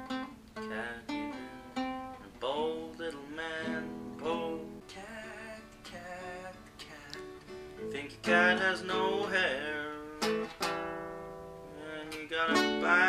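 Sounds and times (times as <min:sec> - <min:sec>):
classical guitar fingerstyle: 0:00.0 - 0:13.0.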